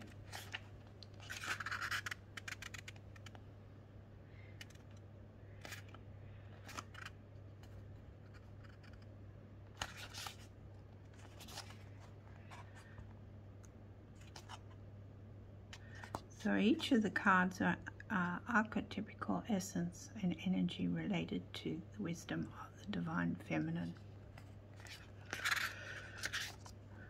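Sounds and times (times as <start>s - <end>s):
book pages rustling: 0.0s - 3.4s, 4.5s - 5.0s, 5.6s - 9.1s, 9.7s - 13.1s, 14.1s - 14.8s, 15.8s - 16.3s, 23.8s - 26.8s
faint low hum: 0.0s - 27.0s.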